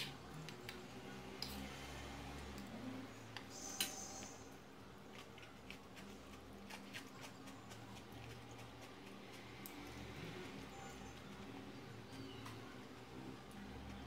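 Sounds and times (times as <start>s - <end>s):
small eating clicks: 4.2s - 14.0s.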